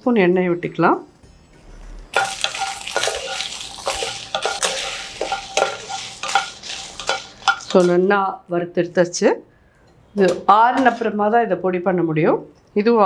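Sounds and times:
chillies sizzling in oil: 2.1 - 8.1
spatula scraping and knocking pan: 2.2 - 8.0.

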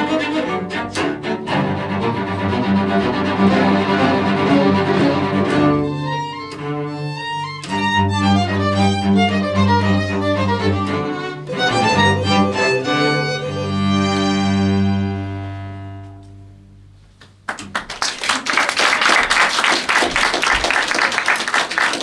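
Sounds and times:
bowed strings holding a chord: 0.0 - 16.8
audience applause: 17.5 - 22.0.

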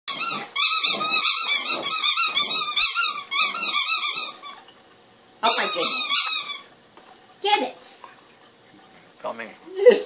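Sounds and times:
puppy whining: 0.1 - 4.5.

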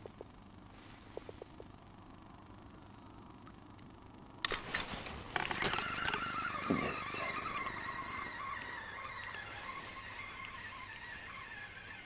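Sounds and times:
fishing reel whirring: 5.1 - 12.0.

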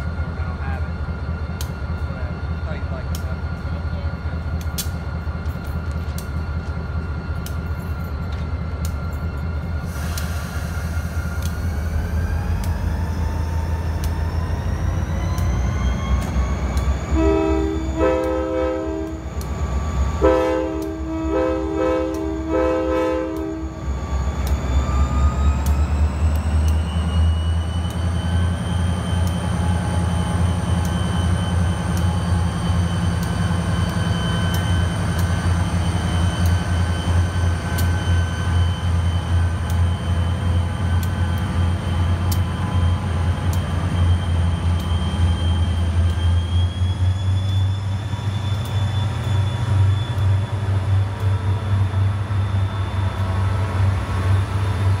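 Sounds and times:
diesel locomotive engine rumble: 0.0 - 55.0
air horn blasts: 17.1 - 19.2, 20.2 - 23.7.

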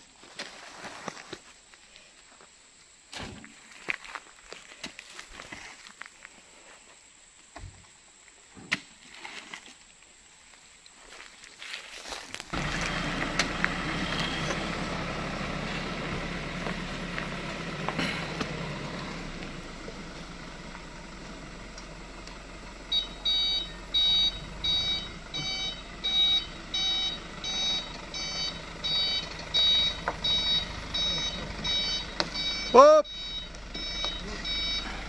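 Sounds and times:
dump truck engine running: 12.5 - 35.0
reversing alarm beeping: 22.8 - 35.0.

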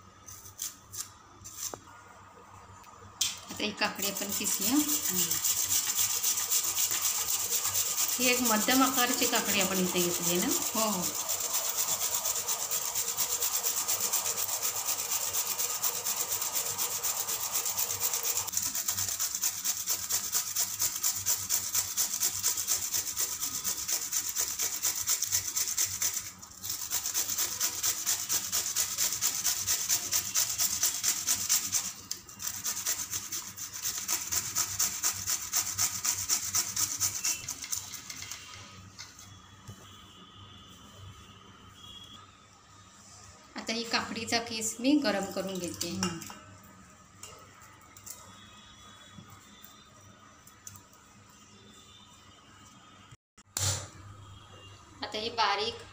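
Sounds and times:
cucumber grated on metal grater: 3.9 - 38.4.

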